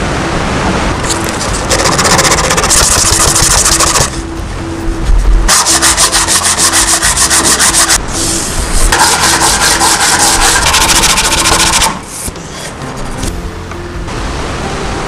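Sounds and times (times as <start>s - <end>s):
sandpaper rubbing on wood: 1.4s - 4.1s, 5.5s - 12.3s.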